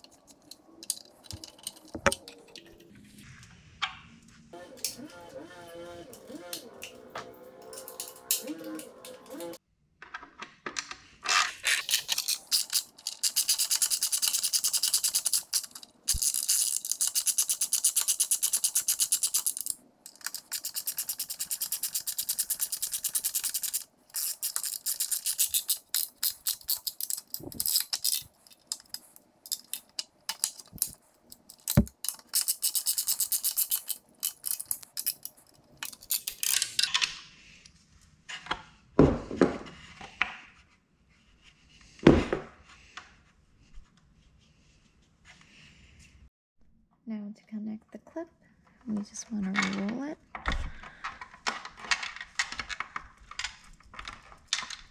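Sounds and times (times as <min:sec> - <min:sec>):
ratchet wrench clicking: 0:12.1 - 0:28.2, 0:31.6 - 0:36.6.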